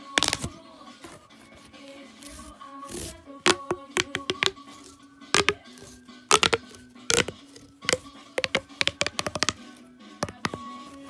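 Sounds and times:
plastic pop tube clicking: 0:00.1 - 0:00.5, 0:02.9 - 0:09.6, 0:10.2 - 0:10.6.

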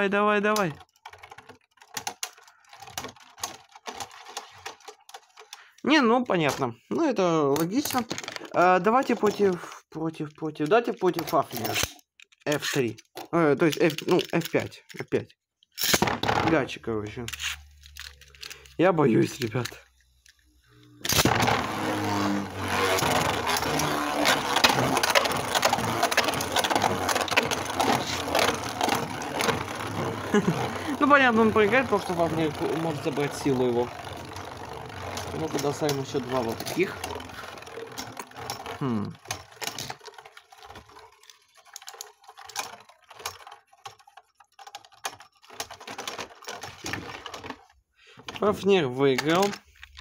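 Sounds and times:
spinning tops grinding whir: 0:17.4 - 0:47.6.

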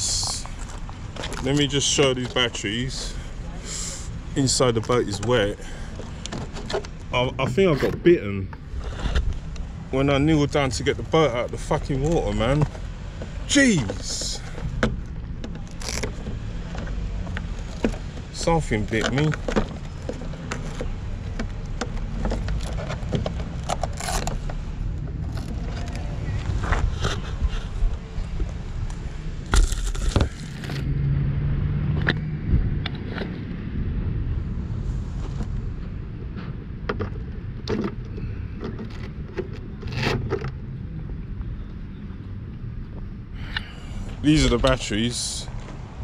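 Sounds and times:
plastic clicks and scrapes: 0:12.0 - 0:27.8, 0:36.9 - 0:40.6.

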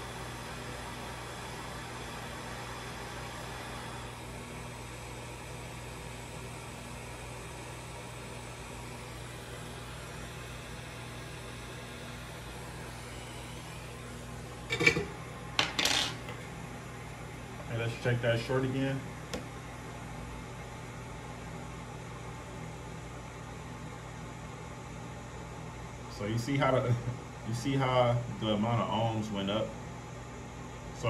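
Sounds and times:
hot air station blowing hiss: 0:00.0 - 0:15.1.

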